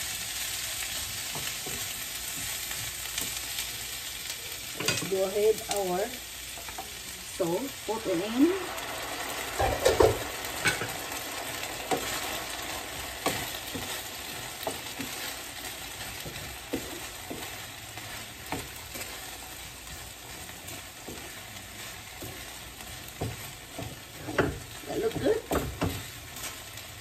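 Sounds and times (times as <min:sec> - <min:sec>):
food sizzling in a frying pan: 0:00.0 - 0:27.0
wooden spatula scraping a pan: 0:06.6 - 0:27.0.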